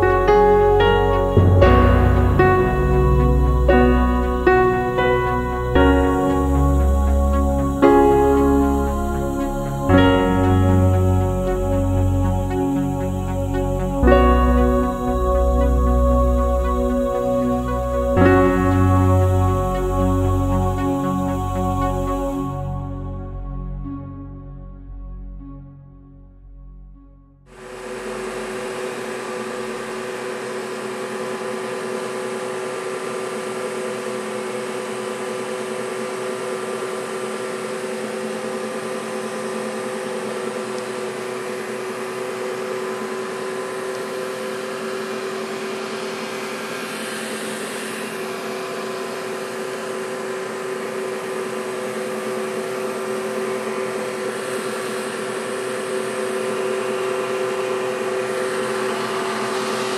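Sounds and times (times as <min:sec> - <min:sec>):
generator motor humming with hiss: 0:00.0 - 0:23.2, 0:27.5 - 0:59.9.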